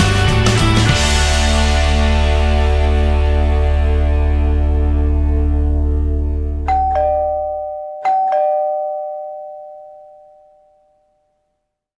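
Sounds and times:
two-note doorbell chime: 0:06.7 - 0:11.4.

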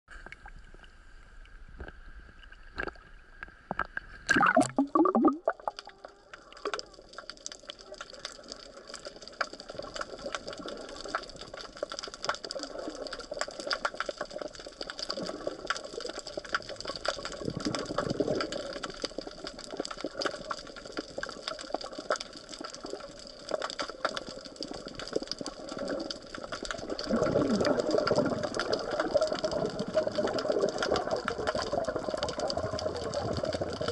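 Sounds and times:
dense crackling clicks: 0:00.1 - 0:33.9
muffled underwater water noise: 0:00.1 - 0:33.9
splash and gurgle: 0:03.8 - 0:05.9, 0:22.8 - 0:33.9.

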